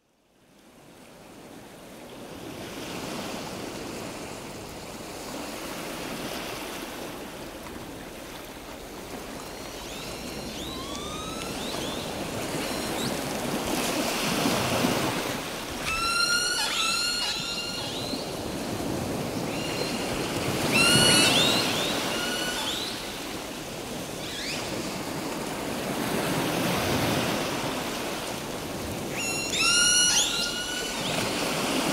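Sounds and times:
seagulls calling: 9.3s - 24.8s, 28.9s - 31.9s.

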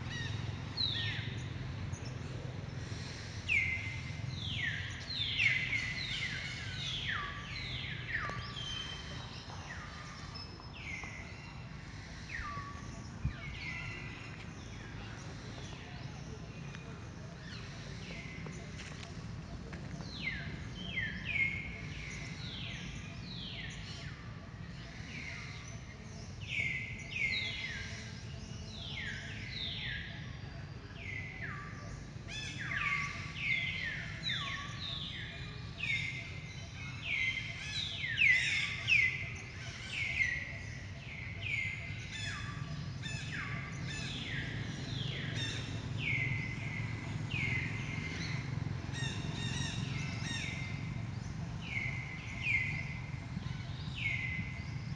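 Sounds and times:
birds whistling calls: 31.0s - 54.9s.

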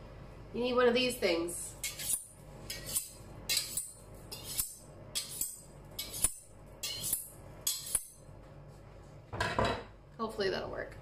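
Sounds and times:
knife scraping on honing rod: 1.8s - 8.2s.

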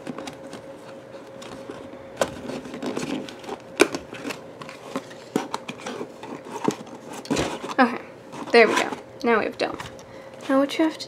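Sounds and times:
paper rustling and crinkling: 0.0s - 9.0s
faint steady hum: 0.0s - 11.0s.

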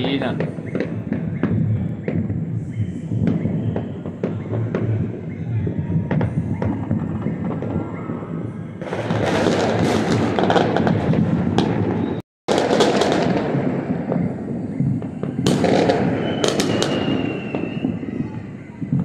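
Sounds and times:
fireworks crackling and banging: 0.0s - 19.0s
high steady whistle: 0.6s - 8.8s, 14.2s - 19.0s.

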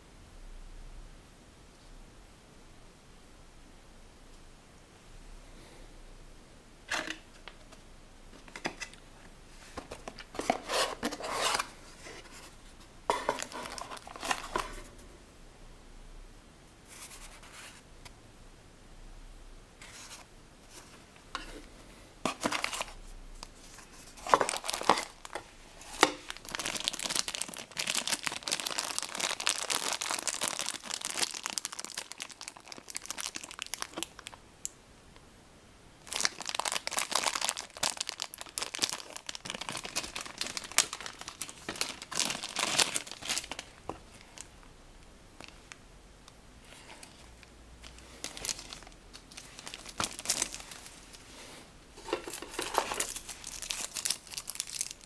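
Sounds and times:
plastic bag crinkling: 13.1s - 14.8s, 22.3s - 34.4s, 36.0s - 44.5s, 46.9s - 51.2s, 52.0s - 55.0s.

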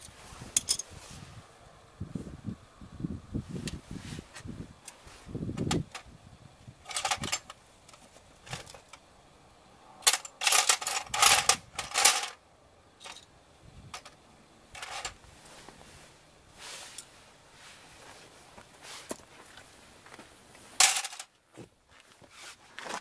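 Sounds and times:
metal clinking and rattling: 6.8s - 9.0s, 10.0s - 12.4s, 13.9s - 15.2s, 20.8s - 21.3s.

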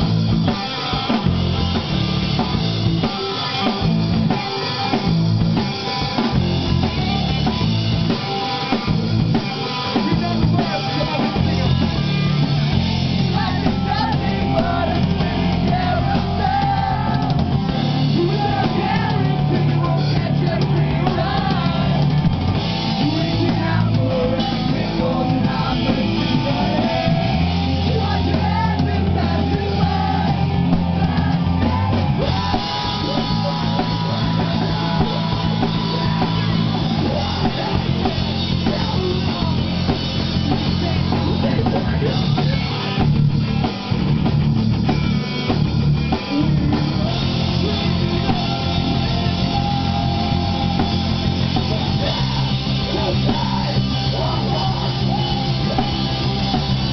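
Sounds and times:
rock band playing: 0.0s - 56.9s.

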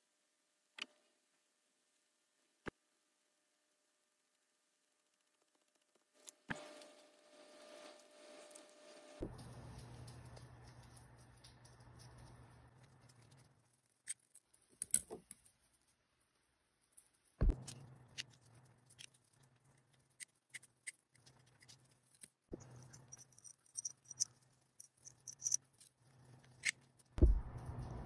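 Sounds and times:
small metal clicks: 9.8s - 15.9s, 16.9s - 27.2s.

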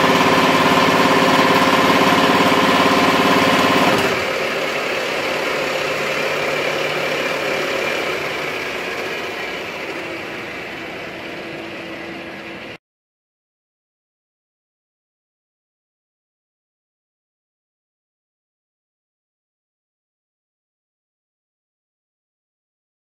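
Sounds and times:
milling machine cutting metal: 0.0s - 12.8s
milling machine running: 0.0s - 12.8s.

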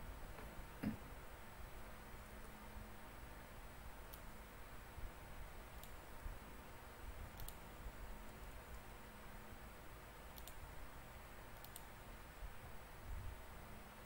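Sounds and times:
quiet room hiss: 0.0s - 14.0s
computer mouse clicks: 4.1s - 4.3s, 5.8s - 6.0s, 7.3s - 7.6s, 10.3s - 10.7s, 11.5s - 11.9s.

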